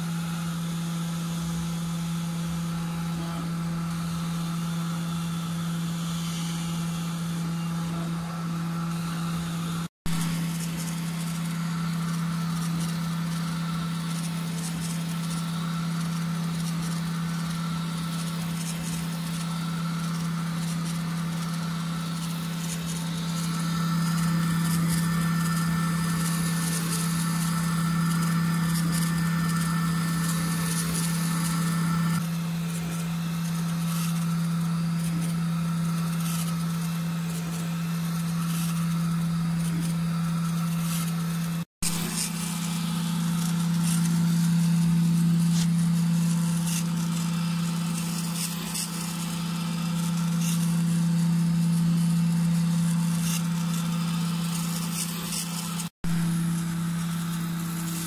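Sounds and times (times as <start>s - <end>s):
laser engraver fans humming: 0.0s - 58.0s.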